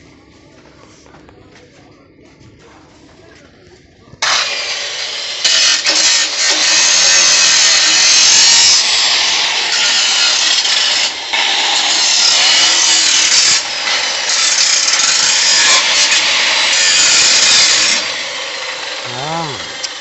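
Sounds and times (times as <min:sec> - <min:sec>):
angle grinder cutting metal: 0:04.2 - 0:20.0.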